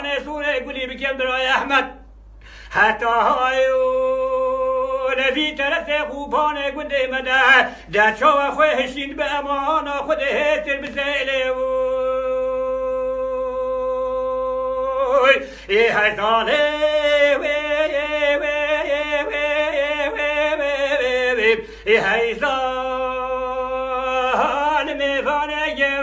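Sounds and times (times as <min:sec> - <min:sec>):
man singing unaccompanied: 0:00.0 - 0:26.0
singer breathing: 0:02.2 - 0:02.8, 0:07.6 - 0:08.0, 0:15.4 - 0:15.7, 0:21.6 - 0:21.9.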